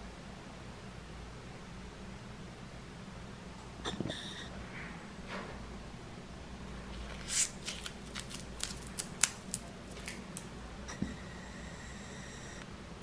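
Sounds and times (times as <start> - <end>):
faint steady hum: 0.0 - 13.0
plastic film crinkling: 7.0 - 10.5.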